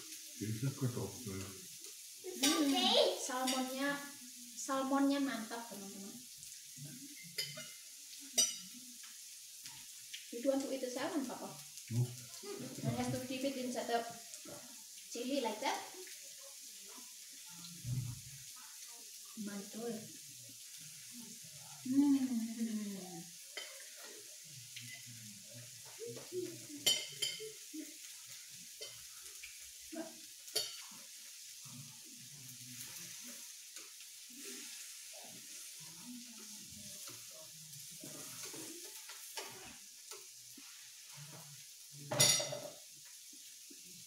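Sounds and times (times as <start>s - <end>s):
food sizzling on a grill: 0.0s - 44.0s
cutlery clinking on plates: 7.1s - 9.8s, 23.5s - 25.2s, 25.8s - 27.7s, 30.5s - 31.1s, 42.1s - 42.9s
dishes clattering: 7.2s - 7.8s, 26.8s - 27.6s, 42.1s - 42.8s.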